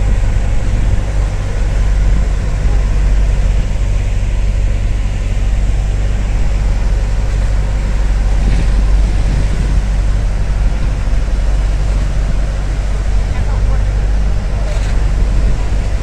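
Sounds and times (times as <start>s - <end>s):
boat engine droning: 0.0s - 16.0s.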